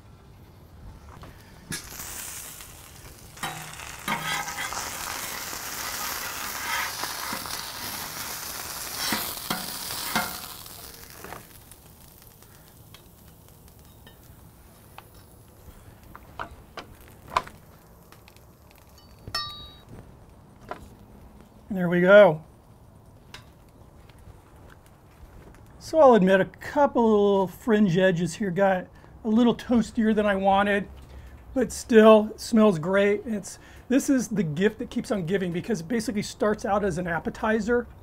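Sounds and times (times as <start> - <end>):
meat sizzling on griddle: 1.6 - 19.4
spatula scrapes: 3.4 - 5.1, 5.8 - 7.6, 8.9 - 10.4.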